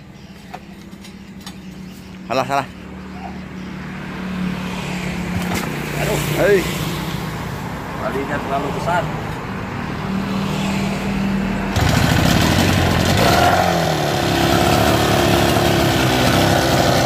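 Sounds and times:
outboard motor running: 11.8s - 13.3s.

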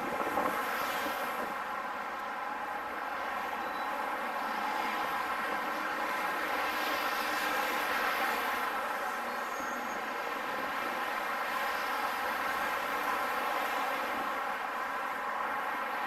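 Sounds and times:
road traffic passing: 0.0s - 16.0s.

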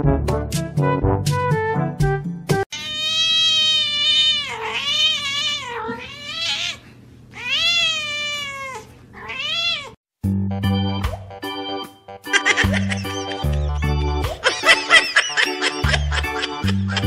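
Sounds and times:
cat meowing: 2.7s - 10.0s.

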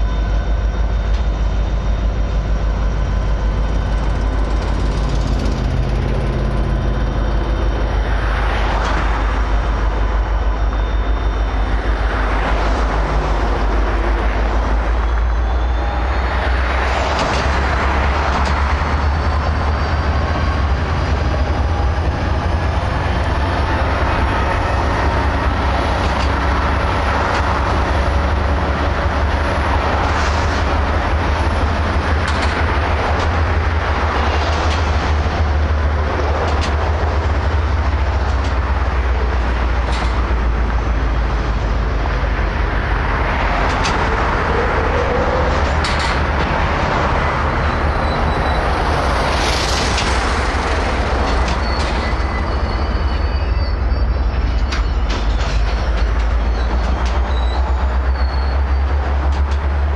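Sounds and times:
train wheels rumbling on rail: 0.0s - 59.9s
sharp knocks and clanks: 45.4s - 46.8s, 54.4s - 57.6s
high thin squeals: 51.3s - 59.0s.

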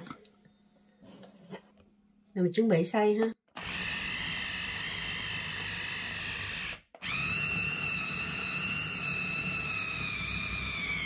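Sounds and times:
food chopper motor whining: 3.5s - 11.0s.

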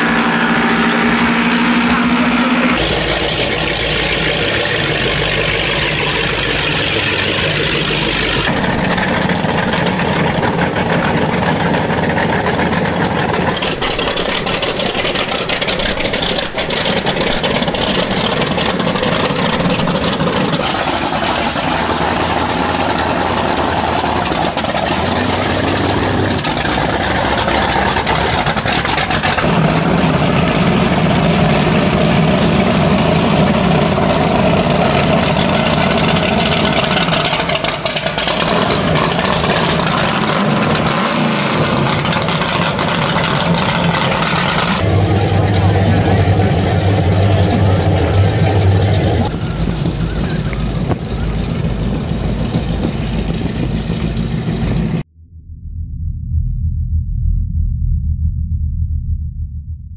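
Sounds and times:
powerboat engines idling: 0.0s - 55.1s.

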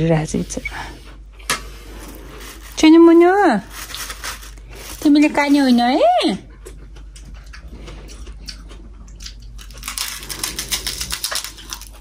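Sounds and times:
chewing: 6.5s - 12.0s.

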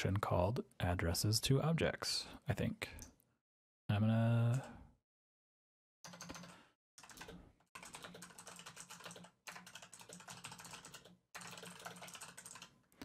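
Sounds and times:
fast typing on keyboard: 6.1s - 12.8s.

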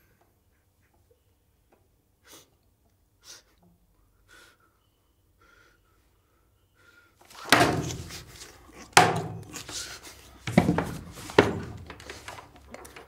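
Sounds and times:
man sniffling: 2.2s - 2.6s, 3.2s - 6.1s, 9.5s - 10.4s.

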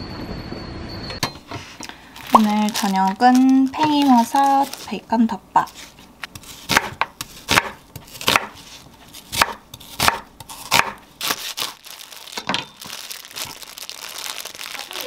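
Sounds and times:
plastic bag crinkling: 2.0s - 6.0s, 11.3s - 15.0s
knife cutting through plastic bag: 2.2s - 5.0s, 5.7s - 15.0s.

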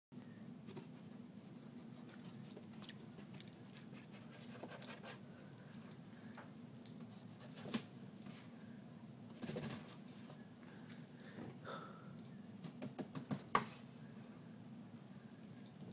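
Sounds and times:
steady low hum: 0.2s - 15.9s.

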